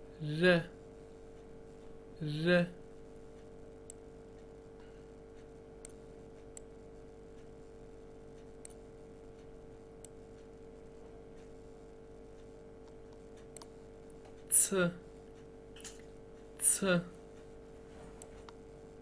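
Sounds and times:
steady electrical hum: 0.0 - 19.0
computer mouse clicks: 8.4 - 10.2, 12.4 - 14.4.

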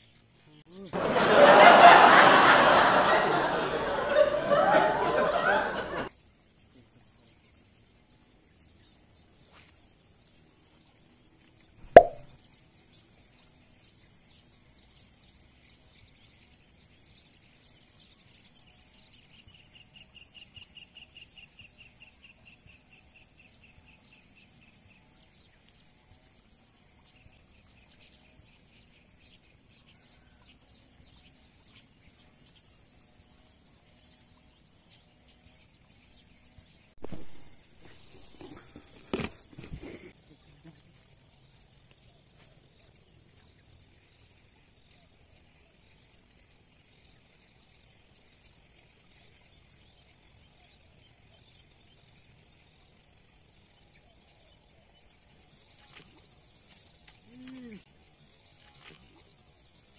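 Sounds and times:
lure splashing into water: 11.8 - 12.3.

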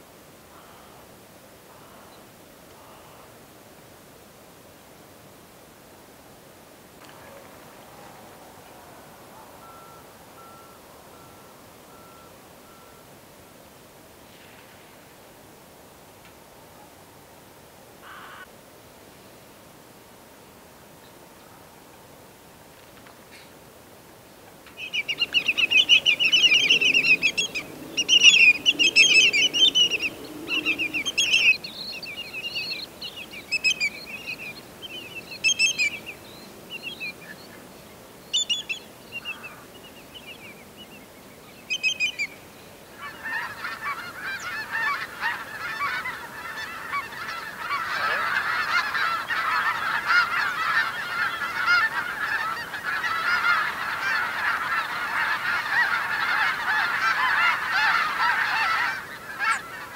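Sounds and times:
flock of geese honking: 7.0 - 13.1, 18.0 - 18.5, 24.7 - 36.2, 42.9 - 59.9
high-pitched bird calls: 24.8 - 36.1, 38.3 - 39.5.

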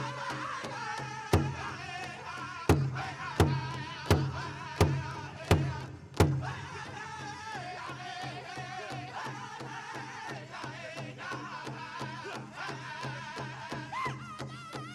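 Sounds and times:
high wavering voices singing: 0.0 - 1.4
fast steady drumbeat: 0.0 - 14.9.

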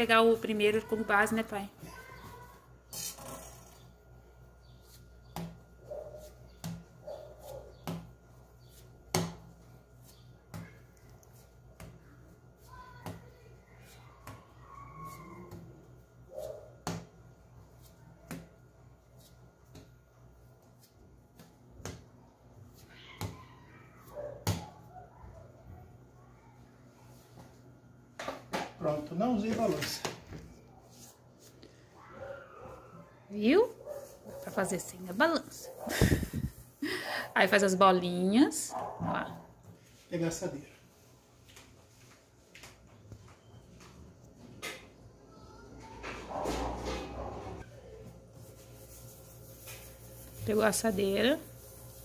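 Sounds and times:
faint hum: 30.2 - 39.9.

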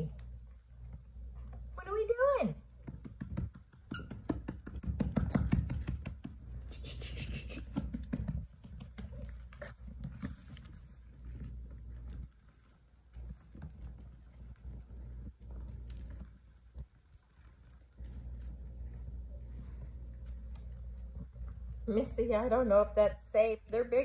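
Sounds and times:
puppy claws pattering on wood floor: 2.7 - 21.9.

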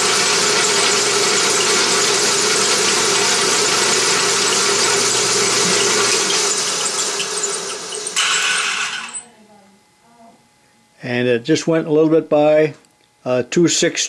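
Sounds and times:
drill press humming: 0.0 - 9.2.

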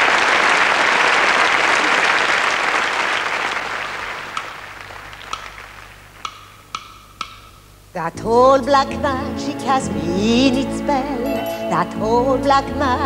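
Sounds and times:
audience applauding: 0.0 - 6.3
sharp knocks: 6.2 - 7.7.

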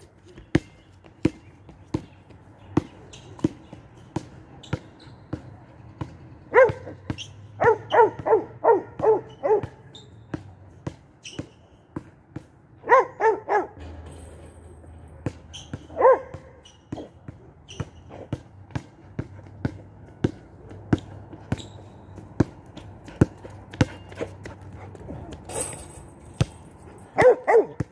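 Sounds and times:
basketball bouncing on asphalt: 0.0 - 13.2, 15.0 - 25.5, 26.3 - 27.9
dog barking: 6.5 - 7.0, 7.6 - 9.8, 12.8 - 13.8, 15.9 - 16.4, 27.2 - 27.9.

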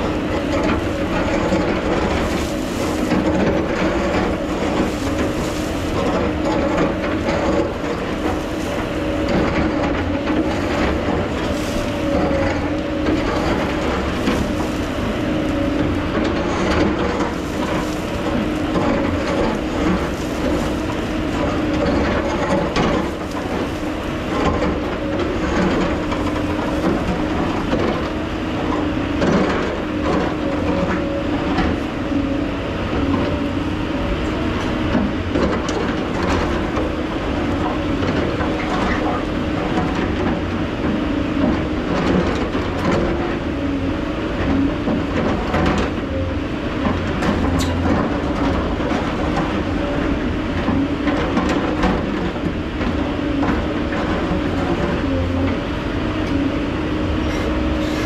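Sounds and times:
bucket scraping earth: 0.0 - 28.6, 57.2 - 58.0
excavator diesel engine: 0.0 - 58.0.

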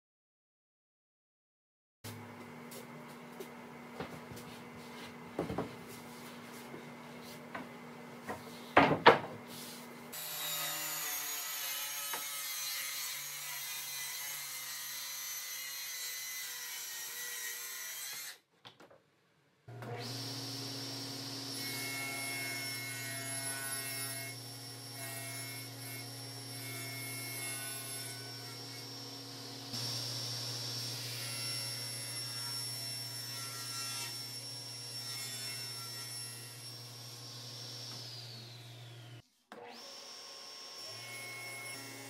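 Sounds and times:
saw blade cutting wood: 10.1 - 18.4, 19.9 - 42.0
table saw motor whine: 19.7 - 42.0.

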